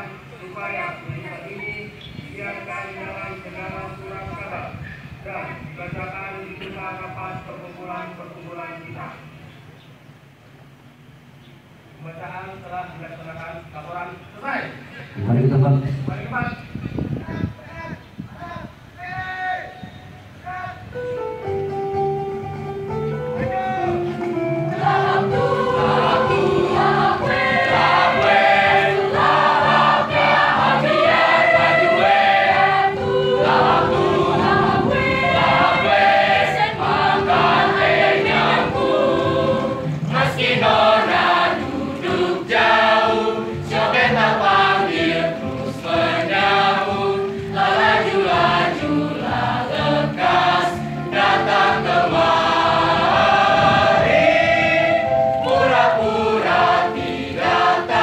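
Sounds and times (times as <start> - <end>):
children's choir singing: 24.6 - 58.0.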